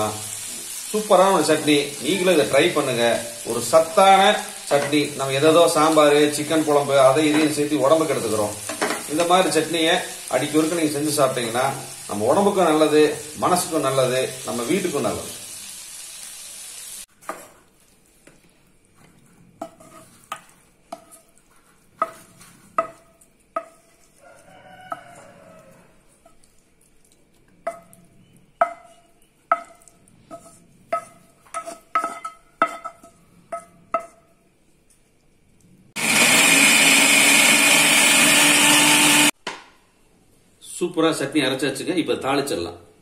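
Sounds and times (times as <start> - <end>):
mixer grinder running: 36.0 - 39.3.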